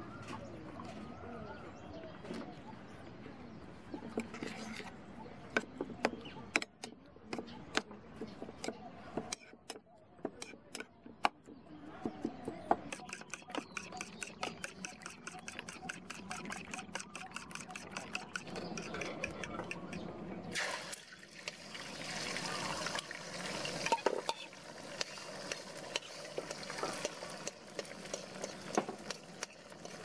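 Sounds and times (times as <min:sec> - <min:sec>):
metal spoon scraping a bowl: 0:04.1 - 0:05.0, 0:12.9 - 0:20.0
whisking eggs in a bowl: 0:12.9 - 0:20.0.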